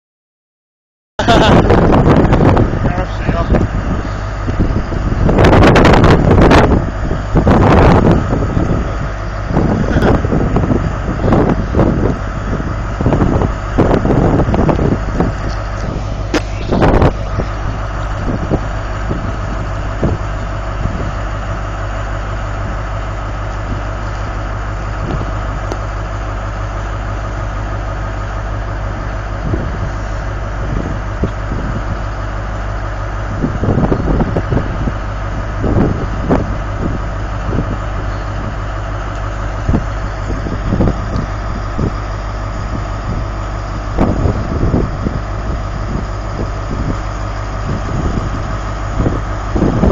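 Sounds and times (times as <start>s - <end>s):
diesel engine idling: 1.2s - 49.9s.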